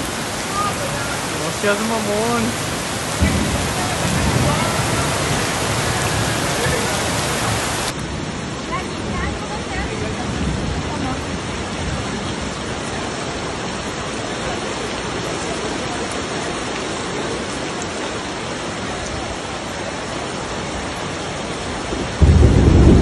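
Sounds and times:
heavy rain hissing: 0:00.0 - 0:23.0
running floodwater: 0:00.0 - 0:23.0
loud low thunder clap: 0:02.4 - 0:07.9, 0:21.9 - 0:23.0.

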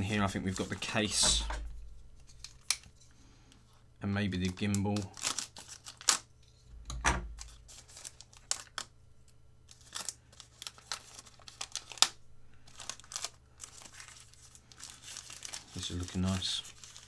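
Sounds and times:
wrapper tearing and crinkling: 0:04.4 - 0:06.3, 0:07.3 - 0:08.9, 0:09.7 - 0:17.0.

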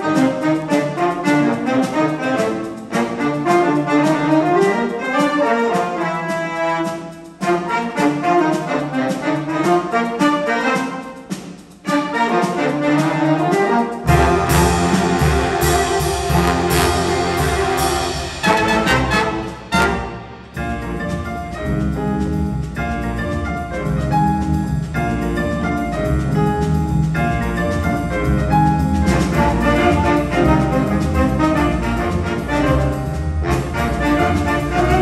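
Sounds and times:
jazz big band playing: 0:00.0 - 0:35.0.

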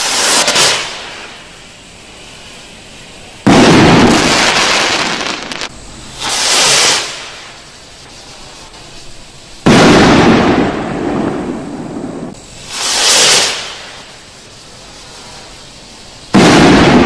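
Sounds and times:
firework loud bang: 0:00.0 - 0:01.5, 0:03.4 - 0:07.6, 0:09.6 - 0:14.3, 0:16.3 - 0:17.0
firework rocket launching hiss: 0:00.0 - 0:17.0.

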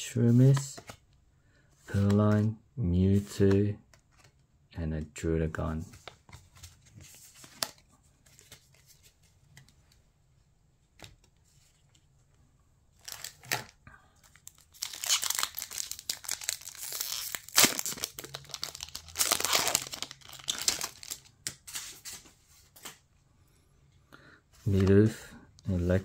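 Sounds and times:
faint clicks of cards handled: 0:03.4 - 0:04.4, 0:11.0 - 0:12.4
foil wrapper tearing and crinkling: 0:14.5 - 0:21.2.

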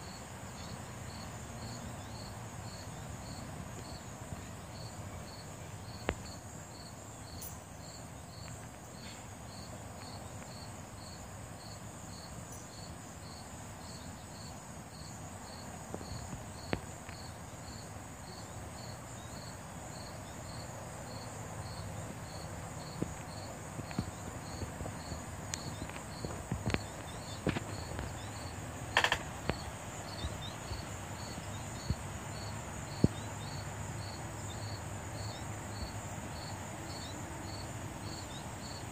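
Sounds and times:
continuous high buzz: 0:00.0 - 0:38.9
insects chirping: 0:00.0 - 0:38.9
sharp clicks and knocks: 0:28.9 - 0:29.6.

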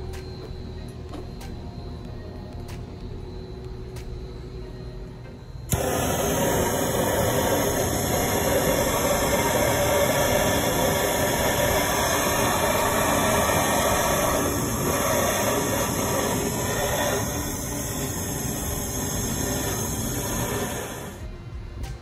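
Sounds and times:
gas torch flame rushing: 0:05.7 - 0:21.3.

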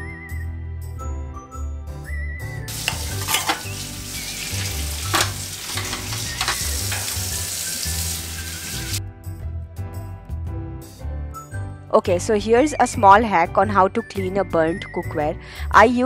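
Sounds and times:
background music: 0:00.0 - 0:16.0
dishes clinking: 0:02.7 - 0:07.8
tap water running into sink: 0:02.7 - 0:09.0.

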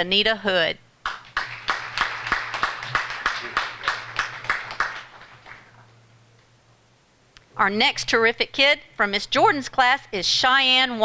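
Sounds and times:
audience applauding: 0:01.0 - 0:05.8.

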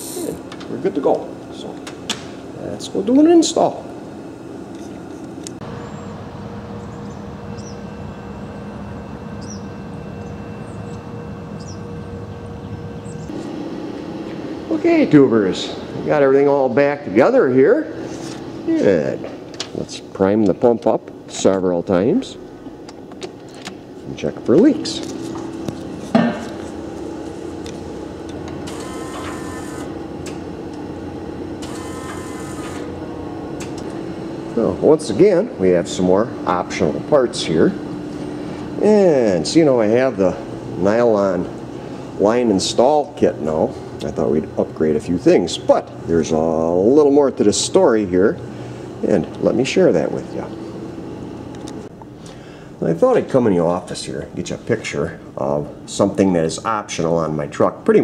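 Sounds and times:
electric fuel pump whirring: 0:00.0 - 0:02.6, 0:22.5 - 0:52.8
outdoor background hum: 0:00.0 - 0:58.0.

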